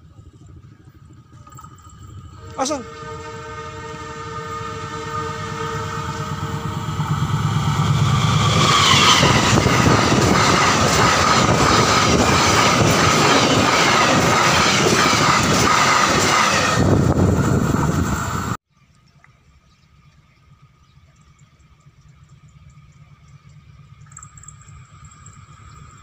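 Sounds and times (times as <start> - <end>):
diesel locomotive passing: 0.0 - 18.6, 20.5 - 26.0
steady whine: 0.0 - 18.6, 20.0 - 26.0
train wheels rushing on rails: 0.0 - 18.6.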